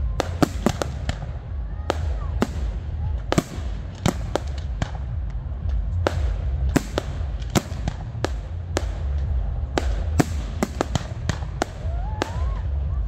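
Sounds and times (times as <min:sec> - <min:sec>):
continuous low rumble: 0:00.0 - 0:13.0.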